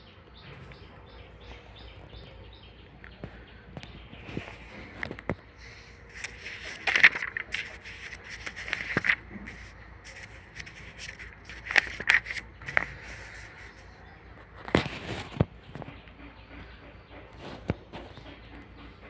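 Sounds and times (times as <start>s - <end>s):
book pages rustling: 4.2s - 15.5s.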